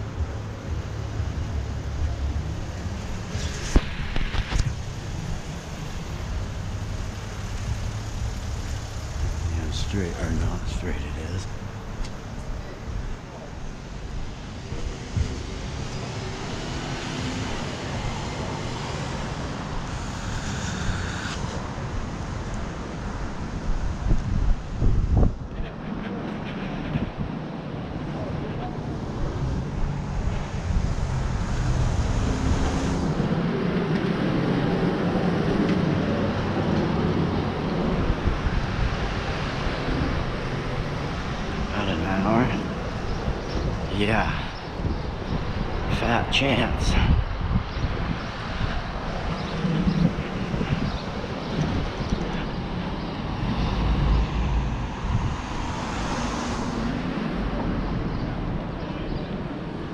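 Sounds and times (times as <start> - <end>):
car passing: 0.0 - 23.7, 48.0 - 59.9
road traffic: 0.0 - 59.9
wind rumbling on microphone: 0.0 - 59.9
hiss: 19.3 - 22.0.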